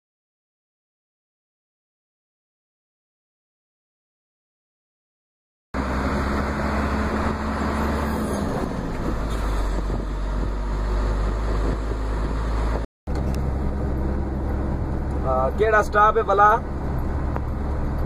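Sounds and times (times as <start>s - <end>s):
road and engine noise: 5.8s - 18.0s.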